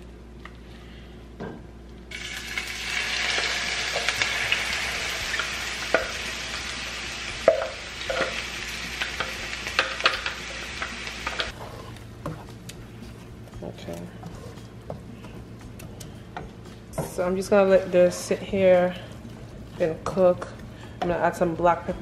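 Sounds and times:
onions sizzling in hot oil: 0:02.1 - 0:11.5.

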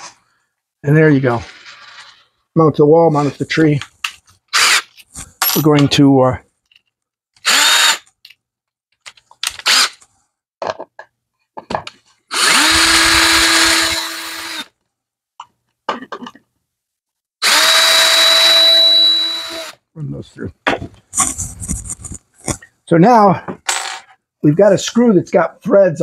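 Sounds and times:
cordless drill boring into wood: 0:04.5 - 0:04.9, 0:07.4 - 0:08.1, 0:09.6 - 0:10.0, 0:12.3 - 0:14.7, 0:17.4 - 0:19.8.

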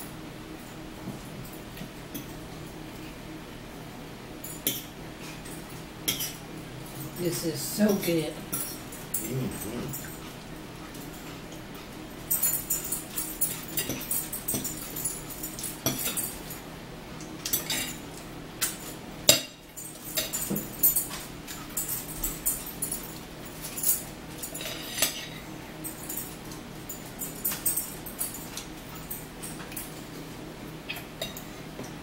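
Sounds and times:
forks clinking on plates: 0:04.5 - 0:10.3, 0:12.2 - 0:16.6, 0:17.4 - 0:30.2, 0:30.9 - 0:31.9.

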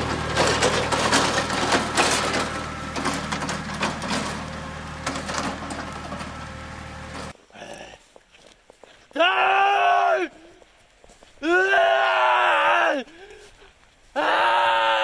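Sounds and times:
diesel tractor engine running: 0:00.0 - 0:07.4
tyres crunching over ground: 0:00.0 - 0:14.6.

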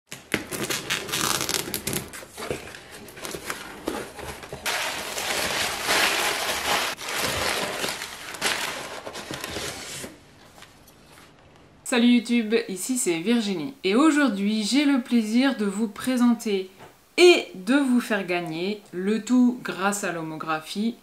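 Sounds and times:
scissors cutting packing tape: 0:00.1 - 0:02.2
packing paper rustling: 0:00.1 - 0:11.4.

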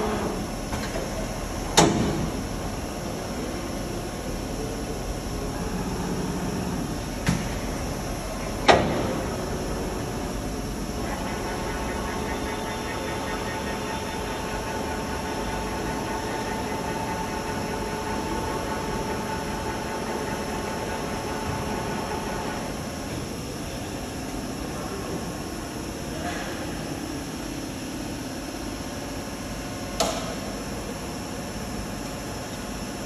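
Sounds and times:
steady mechanical hum: 0:00.0 - 0:33.0
faint high whine: 0:02.3 - 0:27.2.

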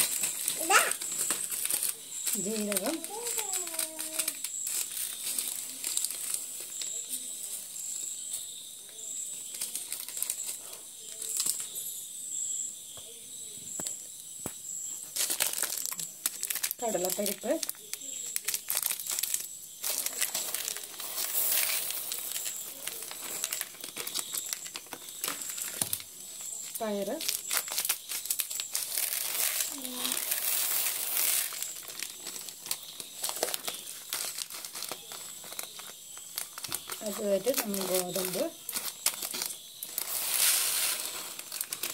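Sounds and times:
plastic packet crinkling: 0:00.0 - 0:07.3, 0:09.4 - 0:11.7, 0:15.2 - 0:41.9
grains pattering into plastic bowl: 0:00.0 - 0:08.2, 0:15.1 - 0:41.9
dry grains pouring into bowl: 0:19.9 - 0:23.6, 0:28.8 - 0:32.0, 0:39.8 - 0:41.9.

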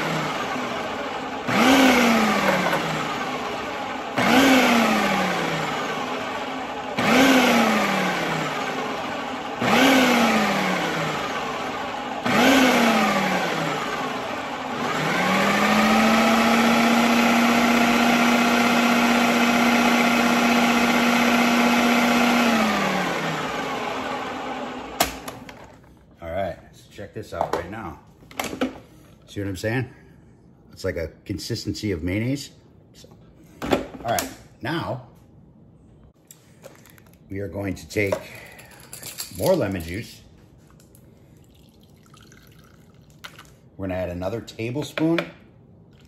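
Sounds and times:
food processor motor: 0:00.0 - 0:25.7.

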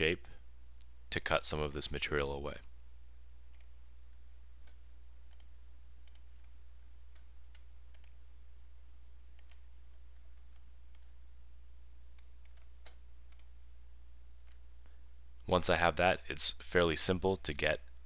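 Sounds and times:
steady low hum: 0:00.0 - 0:18.0
computer mouse clicking: 0:03.5 - 0:08.2, 0:09.4 - 0:09.7, 0:10.4 - 0:13.6, 0:14.4 - 0:14.6.

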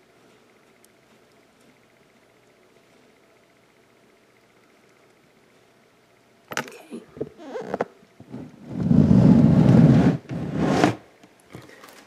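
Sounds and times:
plastic tub scraping on shelf: 0:08.3 - 0:11.0.

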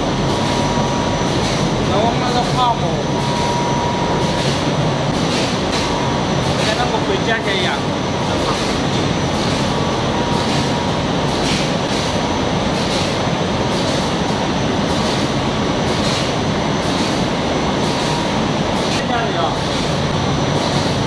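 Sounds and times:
printing press machine noise: 0:00.0 - 0:21.0.

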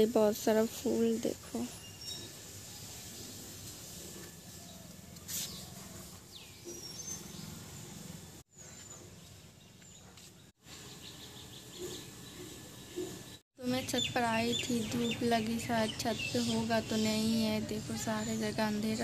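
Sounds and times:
faint outdoor ambience: 0:00.0 - 0:19.0
high bird chirps: 0:13.6 - 0:19.0.

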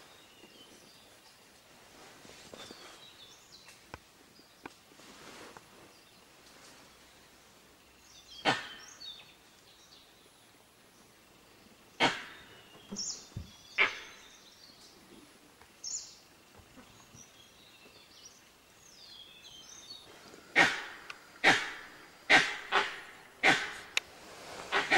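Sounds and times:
small birds chirping: 0:02.3 - 0:04.9, 0:05.6 - 0:24.1
sharp animal barks: 0:08.4 - 0:08.9, 0:12.0 - 0:12.5, 0:13.8 - 0:14.2, 0:20.6 - 0:24.0.

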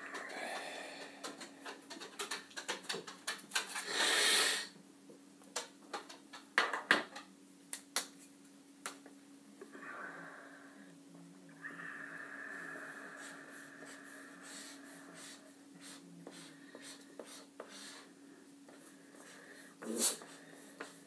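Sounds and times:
markers clicking and tapping: 0:01.2 - 0:03.8
marker scratching on paper: 0:13.8 - 0:18.1, 0:18.7 - 0:21.0.

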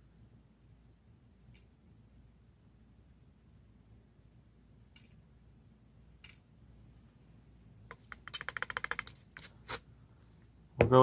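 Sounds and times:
sharp clicks: 0:07.9 - 0:09.2.

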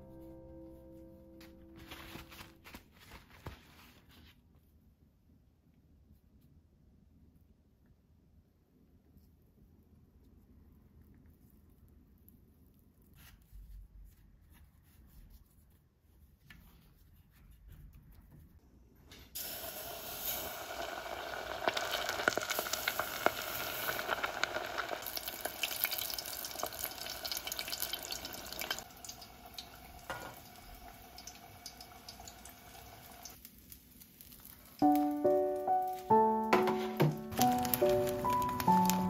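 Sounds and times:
background music with plucked notes: 0:00.0 - 0:02.8, 0:34.8 - 0:39.0
fish deep-frying in oil: 0:19.4 - 0:35.3, 0:37.0 - 0:39.0.

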